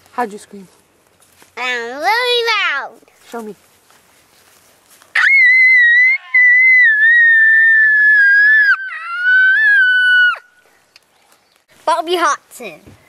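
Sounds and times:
boy screaming: 5.2s - 10.6s.

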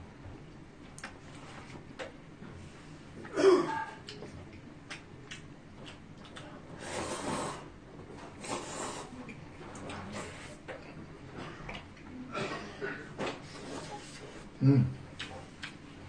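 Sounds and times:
man slurping noodles: 6.8s - 7.7s, 8.4s - 9.2s
snort-like breath: 6.8s - 7.7s, 8.4s - 9.2s.

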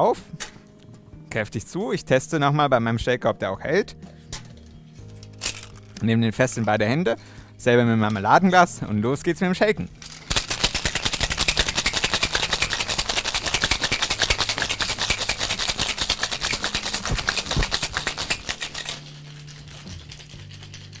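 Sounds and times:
ice rattling in cocktail shaker: 5.4s - 5.9s, 10.0s - 21.0s.

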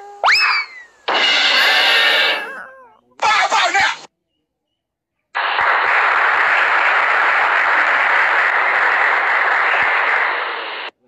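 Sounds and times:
dense applause: 5.6s - 11.0s.

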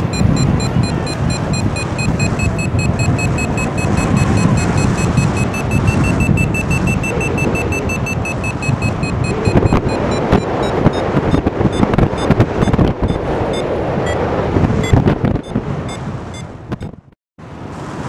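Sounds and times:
high electronic beeping: 0.0s - 13.6s
wind buffeting microphone: 0.0s - 18.0s.

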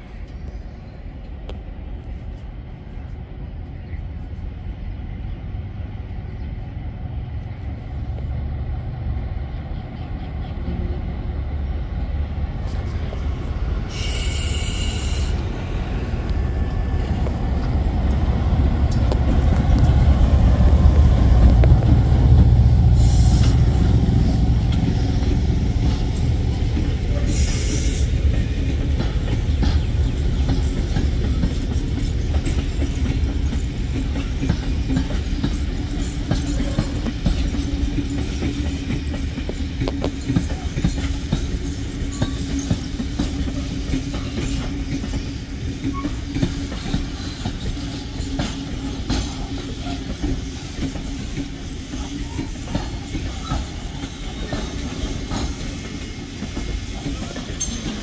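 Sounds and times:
diesel locomotive engine rumble: 0.0s - 58.0s
train wheels on rails: 0.0s - 58.0s
high wheel squeals: 13.9s - 15.4s.

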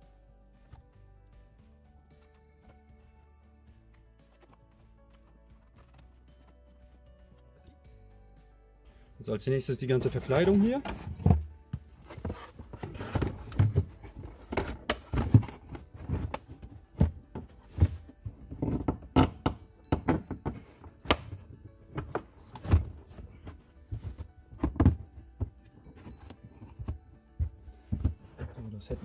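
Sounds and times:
plastic panel knocks and thunks: 22.0s - 25.6s.

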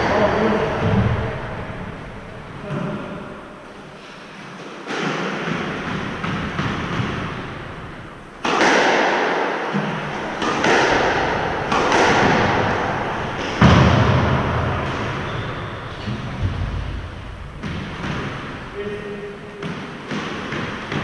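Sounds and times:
squash ball hits echoing: 4.6s - 21.0s.

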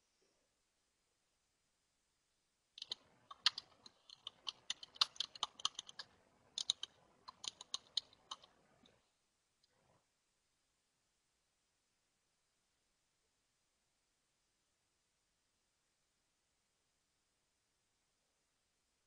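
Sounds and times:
computer keyboard typing: 2.8s - 8.9s.

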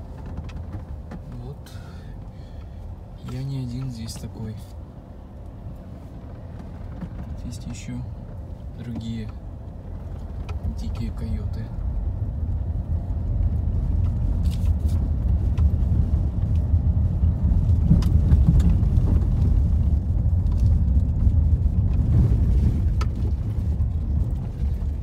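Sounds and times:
low rumble of tyres: 0.0s - 25.0s
wheels knocking in potholes: 13.5s - 25.0s.

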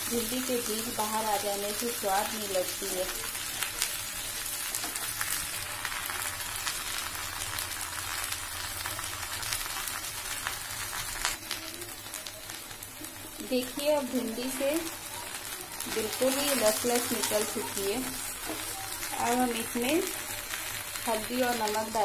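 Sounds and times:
oil crackling and popping: 0.0s - 22.0s
vegetables sizzling in oil: 0.0s - 22.0s.

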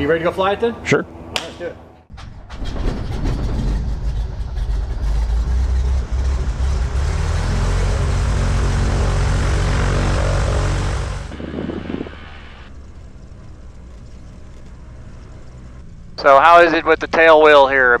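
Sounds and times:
propeller plane engine idling: 3.8s - 18.0s.

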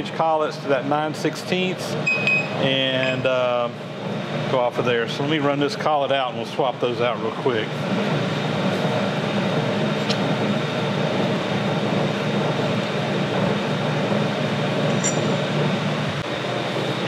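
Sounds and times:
electric machinery drone: 0.0s - 17.0s
faint metallic ting: 14.9s - 15.5s.

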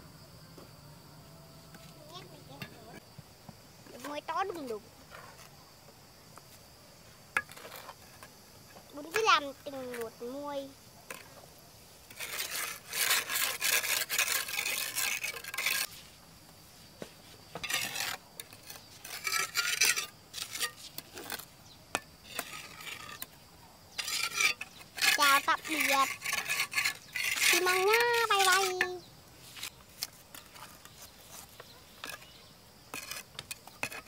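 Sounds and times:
ladle scraping in a container: 12.1s - 15.9s, 17.6s - 21.4s, 24.0s - 34.0s.

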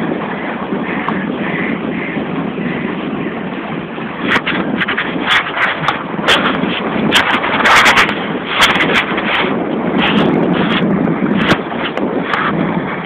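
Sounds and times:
water splashing: 0.0s - 13.0s
wind buffeting microphone: 0.0s - 13.0s
sharp crackles: 4.2s - 12.6s.

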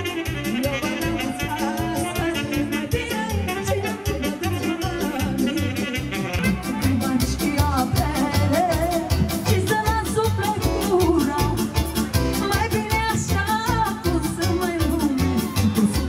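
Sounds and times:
amplified folk dance music: 0.0s - 16.0s.

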